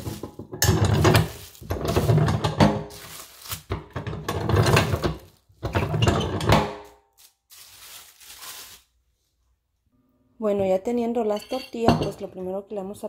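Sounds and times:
plastic sheet crinkling: 0:01.1 - 0:03.8, 0:06.9 - 0:09.0.

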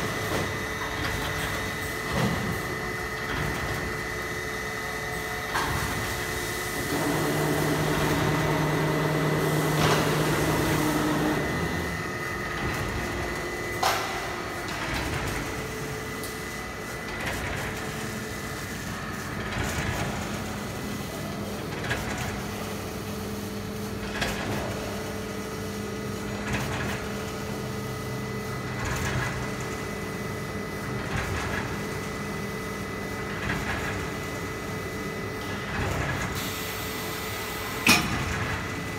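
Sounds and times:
film winder motor hum and whine: 0:00.0 - 0:38.9
deeper motor hum: 0:06.8 - 0:16.2.

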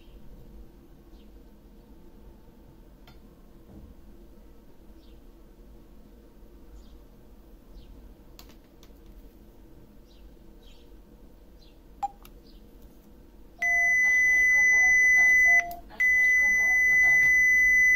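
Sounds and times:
keypad button blip: 0:12.0 - 0:12.2
high-pitched keypad beep: 0:13.6 - 0:17.9.

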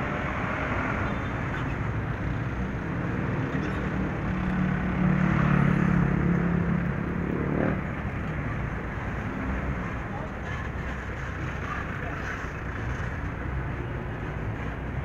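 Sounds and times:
road traffic passing: 0:00.0 - 0:15.0
vehicle engine drone: 0:00.0 - 0:15.0.

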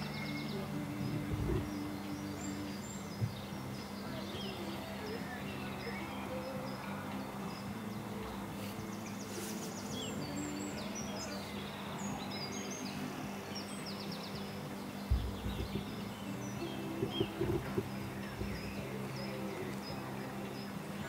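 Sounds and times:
birds chirping and trilling: 0:00.0 - 0:21.0
steady low hum: 0:00.0 - 0:21.0
dull low thumps: 0:01.0 - 0:01.9, 0:03.1 - 0:03.6, 0:15.1 - 0:19.0.

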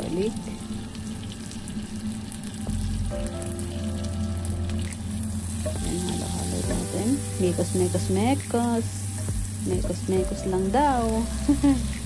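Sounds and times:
butter and garlic sizzling: 0:00.0 - 0:12.0
tune of gliding notes: 0:02.7 - 0:12.0.

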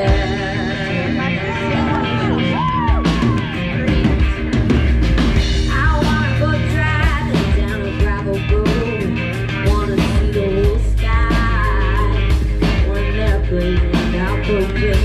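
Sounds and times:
drums keeping a beat: 0:00.0 - 0:15.0
live rock band playing: 0:00.0 - 0:15.0.

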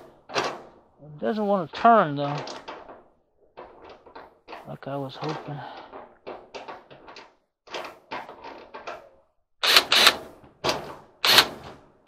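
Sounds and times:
cordless drill driving screw: 0:09.6 - 0:10.2, 0:11.2 - 0:11.6.

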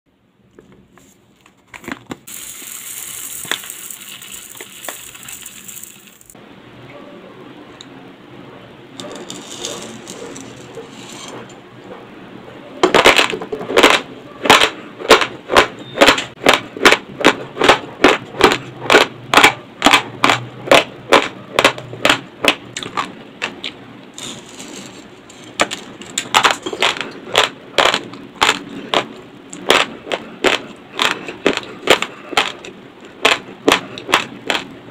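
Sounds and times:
crunching raw rice: 0:02.3 - 0:06.4, 0:09.0 - 0:10.9, 0:21.1 - 0:34.7
rice grains poured into bowl: 0:02.3 - 0:06.4.

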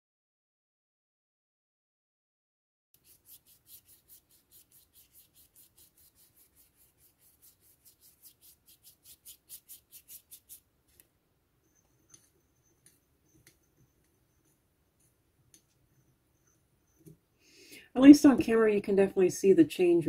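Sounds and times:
paintbrush scrubbing on paper: 0:03.0 - 0:10.7.

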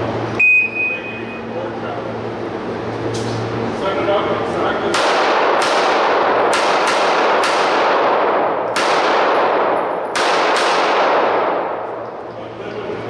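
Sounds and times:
pistol shots echoing: 0:04.9 - 0:12.1.

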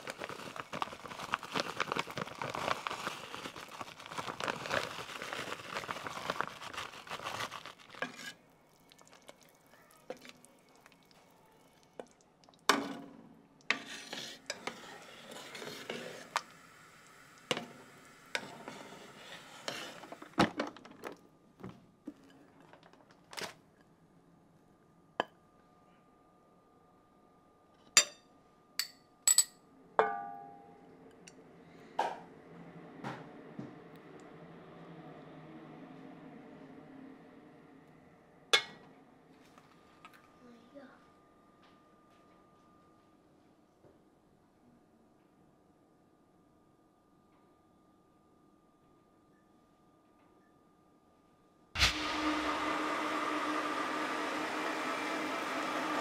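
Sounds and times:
scraping and stirring: 0:00.0 - 0:11.3, 0:13.6 - 0:16.6, 0:17.4 - 0:20.4
pots and dishes clinking: 0:27.9 - 0:28.2, 0:38.6 - 0:38.9.

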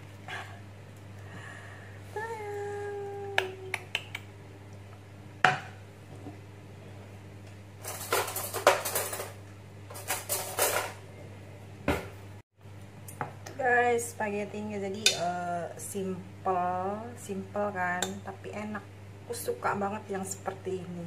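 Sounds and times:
plate scraping and rattling: 0:07.8 - 0:11.0.

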